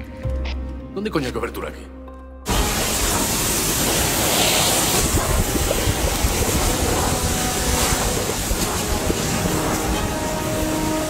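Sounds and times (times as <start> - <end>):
cutting torch hissing: 2.5 - 11.0.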